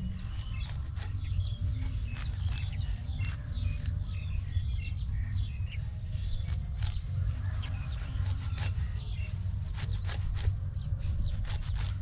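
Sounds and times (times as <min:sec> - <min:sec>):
faint bird chirps: 0:00.0 - 0:12.0
grass tearing and rustling: 0:00.0 - 0:12.0
steady low rumble: 0:00.0 - 0:12.0.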